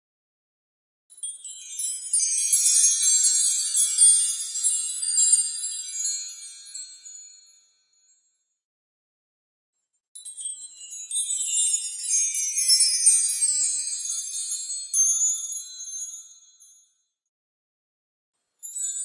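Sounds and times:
high tinkling chimes: 1.1 - 8.4, 10.2 - 17.2, 18.6 - 19.0.

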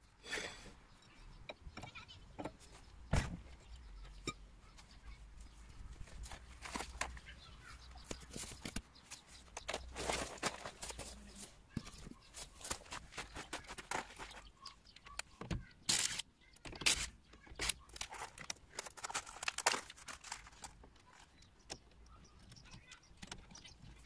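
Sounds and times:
footsteps crunching on gravel: 8.1 - 11.6, 12.3 - 14.5
hand tools clinking and knocking: 15.8 - 24.0.

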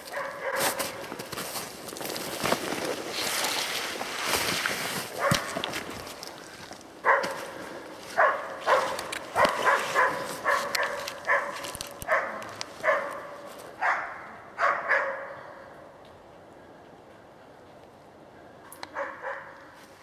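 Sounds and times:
dog barking: 0.0 - 1.0, 5.2 - 5.6, 7.0 - 15.6, 18.9 - 19.6.

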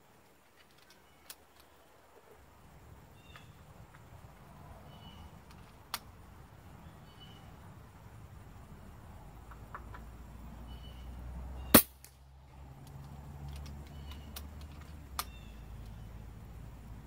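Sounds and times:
air rifle shot: 11.7 - 12.0.

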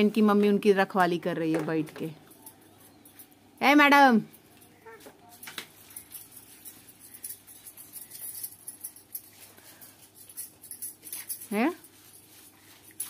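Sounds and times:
plastic things rustling and clicking: 4.4 - 13.0.

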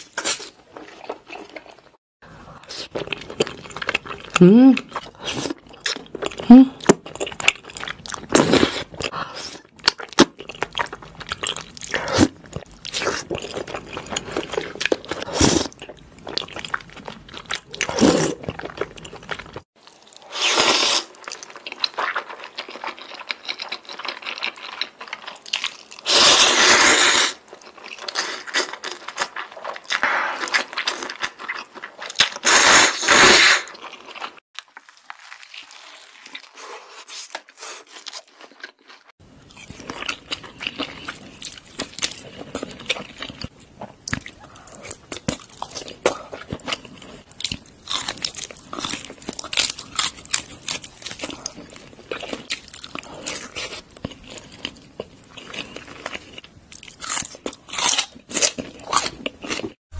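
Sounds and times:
biting and chewing burger: 33.7 - 59.8.

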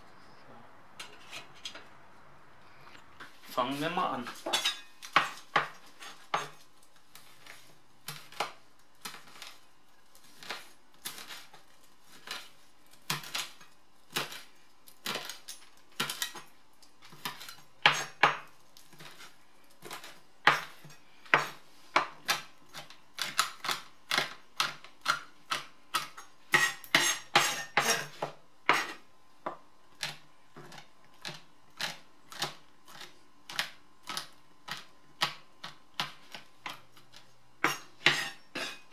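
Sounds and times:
knife chopping on cutting board: 4.3 - 6.6, 17.1 - 36.8, 37.6 - 38.8.

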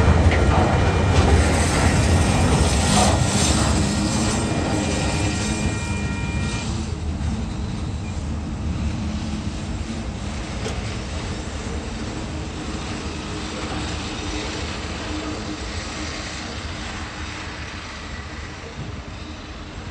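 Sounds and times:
level-crossing warning bell: 0.0 - 6.9
train wagons rumbling on track: 0.0 - 19.9.

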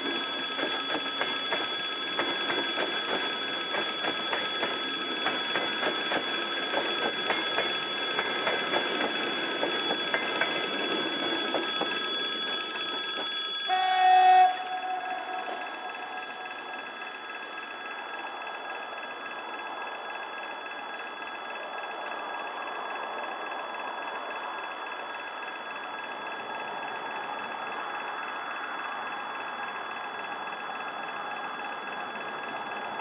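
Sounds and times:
train horn blast: 13.7 - 15.6.

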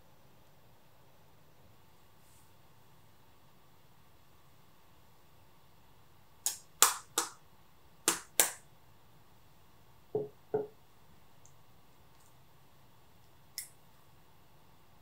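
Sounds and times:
dull knocks on wooden counter: 10.2 - 10.7.

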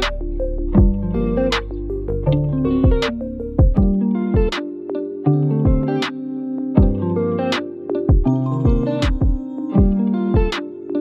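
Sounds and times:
sustained keyboard chords: 0.0 - 11.0
kick drum thumps: 0.8 - 1.1, 2.8 - 4.6, 5.7 - 5.9, 6.8 - 7.0, 8.1 - 10.6.

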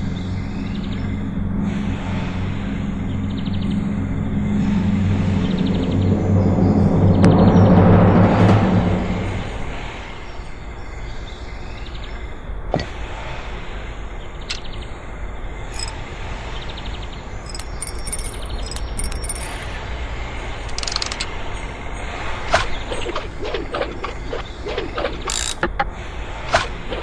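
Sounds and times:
light metal clinks: 15.7 - 15.9, 17.4 - 19.8.

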